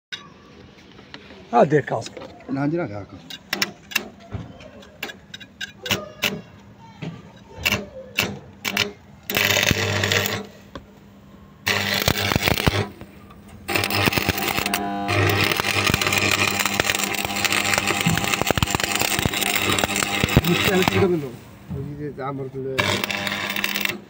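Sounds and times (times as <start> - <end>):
welding arc crackling: 7.6 - 10.6, 11.6 - 21.4, 22.8 - 24.0
steady welder hum: 7.6 - 10.7, 11.6 - 21.8, 22.7 - 24.0.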